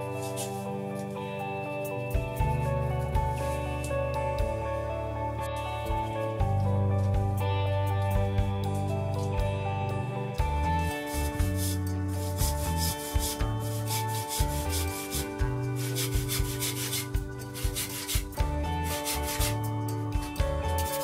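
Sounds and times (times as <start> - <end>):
bandsaw cutting wood: 11.1 - 19.6.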